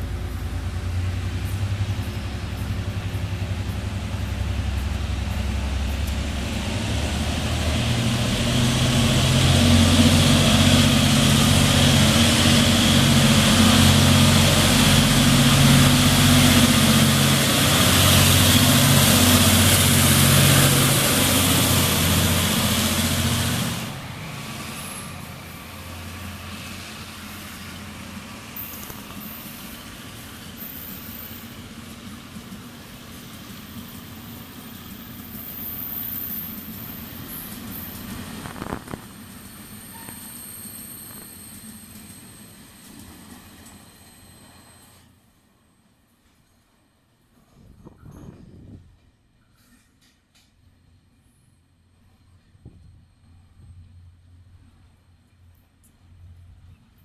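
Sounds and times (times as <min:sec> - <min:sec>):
wheels hissing on rail: 0:00.0 - 0:46.7
diesel locomotive engine hum: 0:00.0 - 0:57.0.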